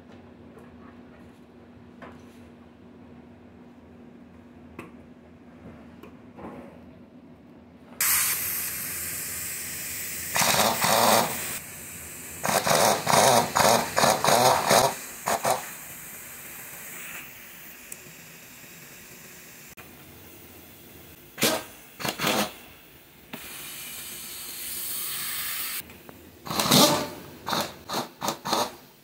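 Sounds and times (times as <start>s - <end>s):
pneumatic impact wrench hammering: 8.0s - 11.6s, 12.4s - 15.8s, 21.4s - 22.7s, 26.4s - 28.9s
compressed air hissing: 8.0s - 20.7s, 21.4s - 25.8s.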